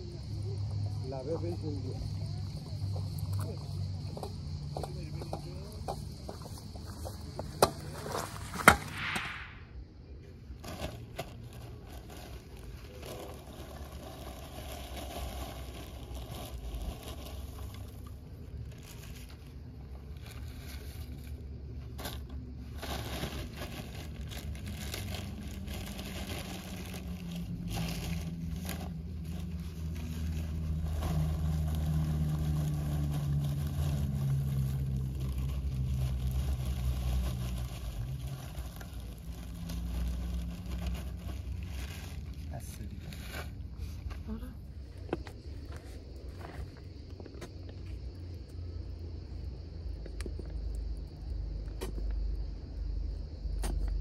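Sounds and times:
low engine hum: 0.0 - 8.9, 15.2 - 54.0
plastic bag crinkling: 10.6 - 43.7.

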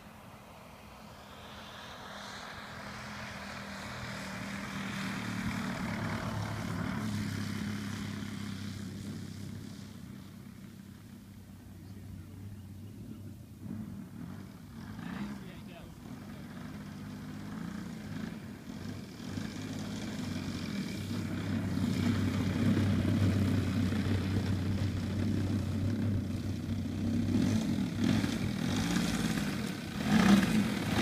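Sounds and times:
model plane engine running: 0.2 - 31.0.

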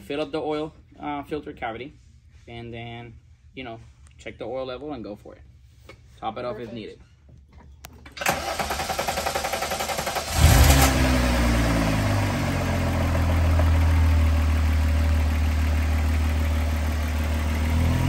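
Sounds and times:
engine cranking on starter: 8.0 - 12.2
engine revving and idling: 8.3 - 18.0.

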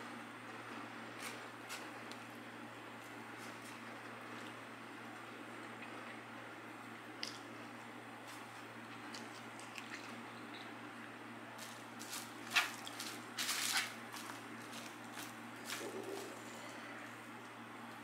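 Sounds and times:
wet chewing clicks: 9.0 - 10.7
hand scraping food in foil tray: 11.6 - 16.4.

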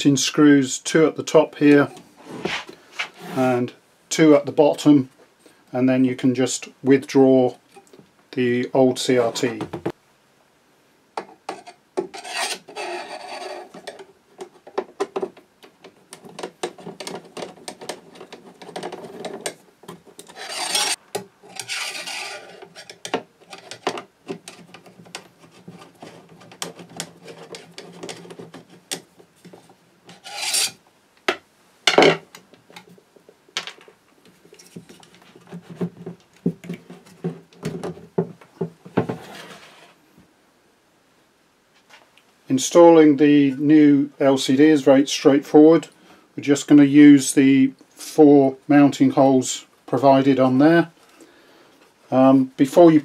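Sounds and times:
screwdriver scraping screws: 12.2 - 14.0, 20.2 - 23.8, 30.1 - 30.8.

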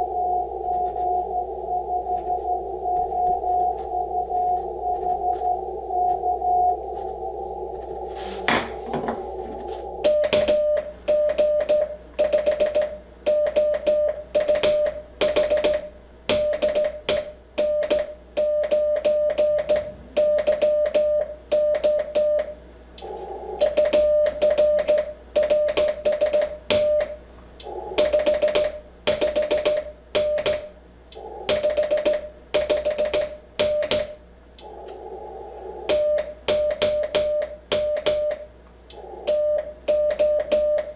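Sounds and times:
receiver hiss: 0.0 - 16.6, 19.2 - 40.9
morse code tone: 0.0 - 30.6, 35.9 - 40.9
tone edge clicks: 9.9 - 35.0, 35.9 - 40.9.

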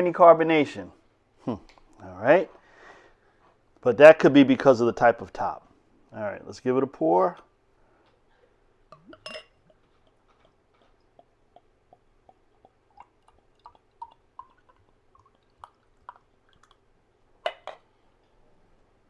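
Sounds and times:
bottle clinking on glass: 9.0 - 9.6
beer glugging into a glass: 10.8 - 16.8.

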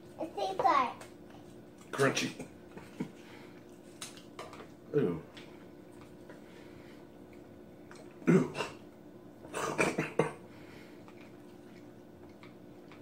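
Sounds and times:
man coughing and clearing throat: 8.2 - 8.8, 9.5 - 10.5.

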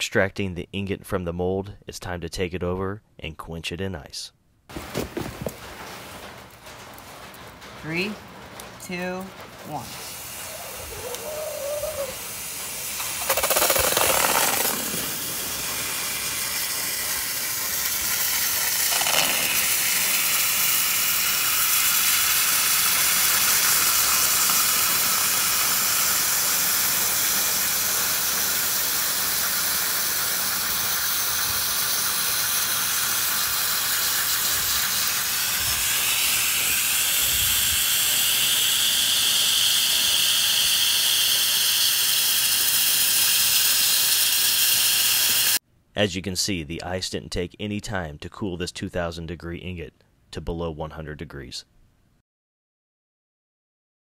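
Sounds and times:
hot metal sizzling on ice: 9.7 - 45.6.

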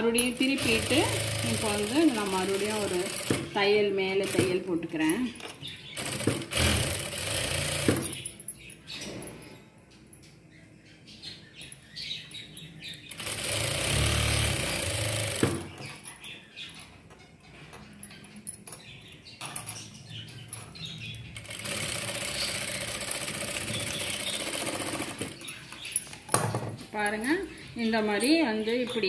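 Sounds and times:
sewing machine stitching: 0.2 - 3.5, 6.0 - 8.0, 13.1 - 15.8, 21.4 - 25.5.

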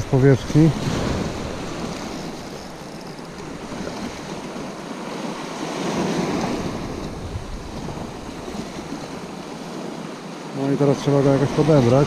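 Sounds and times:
small waves breaking over rock: 0.0 - 12.0
wind on microphone: 5.3 - 10.0.

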